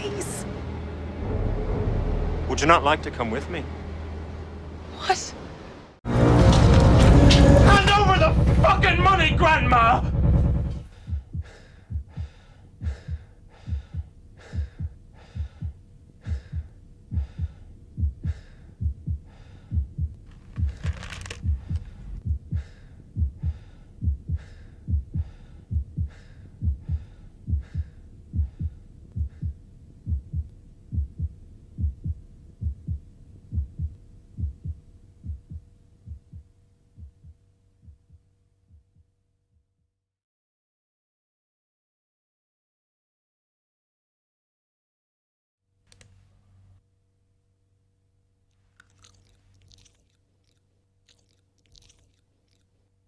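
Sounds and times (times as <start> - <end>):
heartbeat thumps: 8.2 - 39.8
faint steady hum: 10.8 - 39.4.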